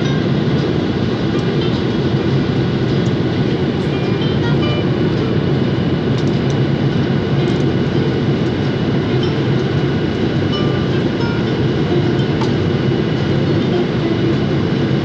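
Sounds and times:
airplane cabin rumble: 0:00.0 - 0:15.0
faint high whine: 0:07.2 - 0:15.0.

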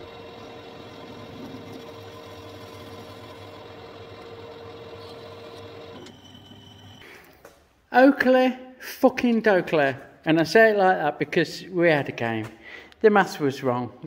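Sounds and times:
lathe chuck spinning down: 0:00.0 - 0:07.0
metal lathe humming: 0:00.0 - 0:07.0.

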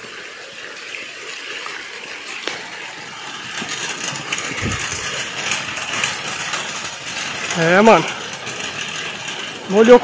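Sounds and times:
drips and taps: 0:00.0 - 0:10.0
heavy rain pouring: 0:00.0 - 0:10.0.

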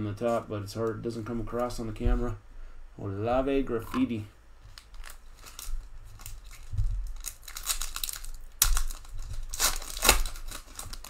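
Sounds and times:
foil wrapper crinkling: 0:04.7 - 0:11.0
loud wrapper rip: 0:05.0 - 0:11.0.

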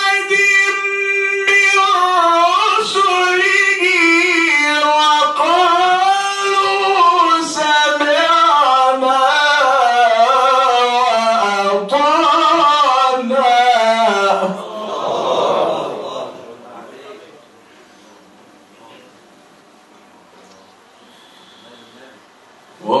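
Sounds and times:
man reciting melodically: 0:00.0 - 0:17.0, 0:22.8 - 0:23.0
short breaths: 0:21.0 - 0:22.2.

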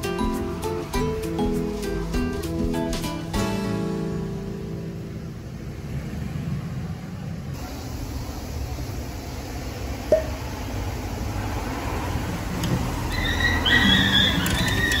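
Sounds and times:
street traffic rumble: 0:00.0 - 0:15.0
sharp squeak: 0:13.1 - 0:15.0.

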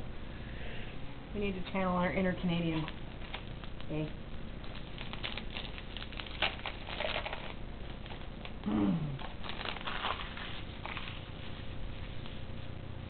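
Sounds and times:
wrapper crinkling: 0:02.7 - 0:03.9, 0:04.6 - 0:08.6, 0:09.2 - 0:12.5
person humming: 0:08.6 - 0:09.3.

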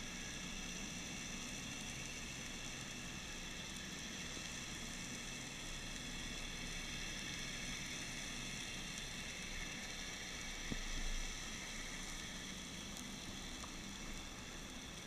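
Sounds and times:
underwater hiss: 0:06.4 - 0:15.0.

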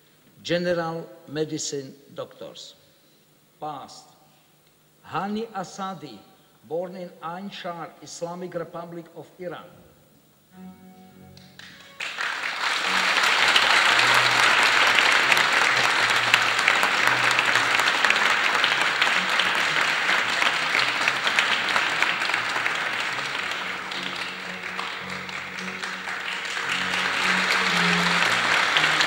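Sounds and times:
soft music: 0:06.8 - 0:29.0
audience applauding: 0:11.4 - 0:29.0.

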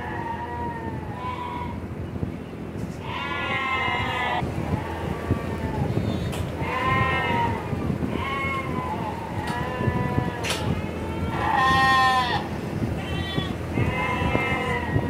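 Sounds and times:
steady background noise: 0:00.0 - 0:15.0
lambs bleating: 0:03.0 - 0:07.6, 0:08.2 - 0:15.0.

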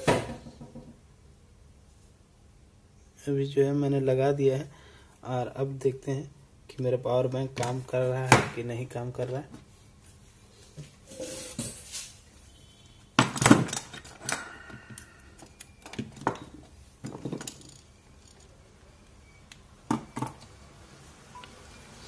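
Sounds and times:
objects handled on a workbench: 0:13.2 - 0:19.2.

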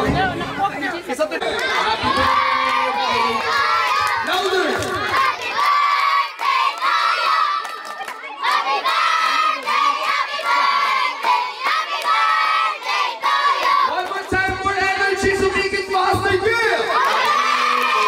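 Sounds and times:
hand-clapping: 0:03.8 - 0:12.3.

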